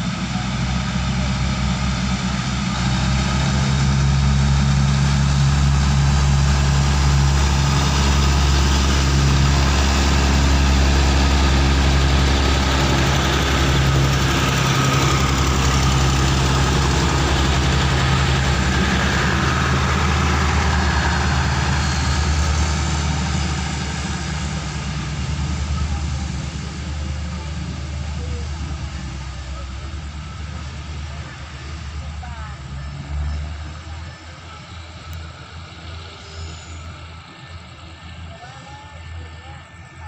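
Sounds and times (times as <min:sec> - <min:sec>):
diesel train engine drone: 0:00.0 - 0:40.0
rail noise: 0:00.0 - 0:40.0.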